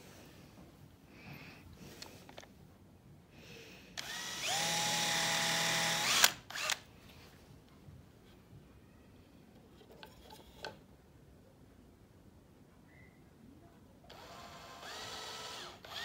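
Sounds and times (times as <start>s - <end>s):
cordless drill boring into wood: 4.0s - 6.8s, 14.1s - 16.0s.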